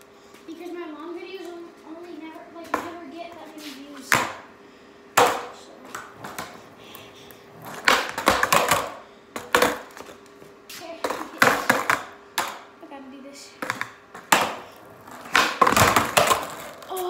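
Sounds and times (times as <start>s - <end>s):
skateboard clacking on concrete: 7.6s - 10.1s, 11.0s - 12.6s, 13.6s - 17.0s.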